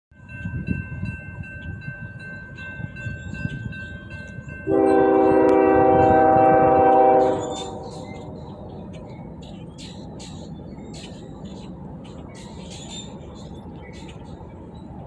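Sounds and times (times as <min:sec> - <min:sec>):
crossing bell ringing: 0:00.1 - 0:10.6
locomotive air horn: 0:04.7 - 0:08.1.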